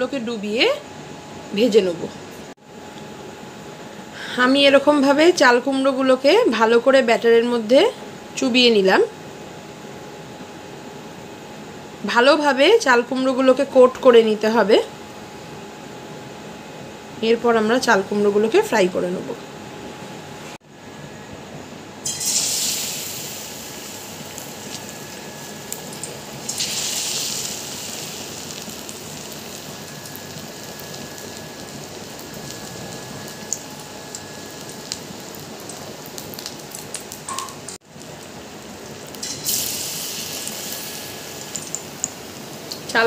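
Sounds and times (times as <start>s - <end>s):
deep-frying sizzle in hot oil: 22.0s - 43.0s.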